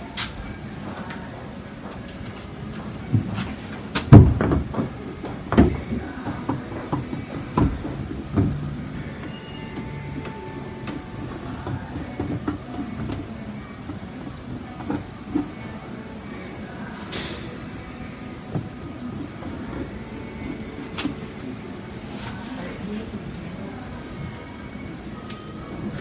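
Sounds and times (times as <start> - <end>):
rustling: 2.0 - 24.4
knocks and clunks of objects: 2.8 - 15.7.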